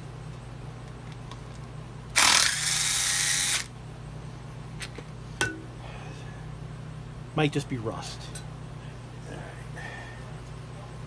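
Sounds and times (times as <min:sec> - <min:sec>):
cordless drill running: 0:02.2 - 0:03.7.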